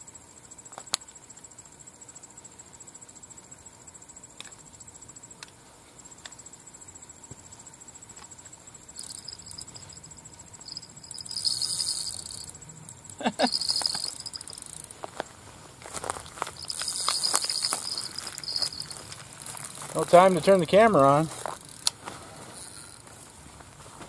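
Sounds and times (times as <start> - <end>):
high insect-like trill: 0.0 - 23.4
fishing reel hissing buzz: 8.8 - 14.9, 16.3 - 23.1.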